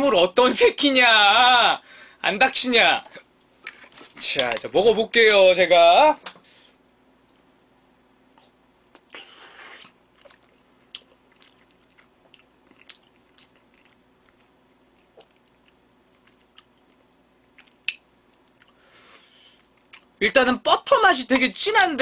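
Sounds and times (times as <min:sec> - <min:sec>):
close-up chewing: 0:09.8 - 0:18.8
wet mouth clicks and smacks: 0:17.6 - 0:18.8.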